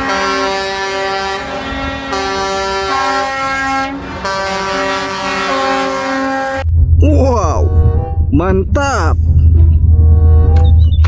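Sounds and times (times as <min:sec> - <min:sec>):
truck air horns blowing: 0:00.0 - 0:06.7, 0:07.6 - 0:08.3, 0:09.8 - 0:10.8.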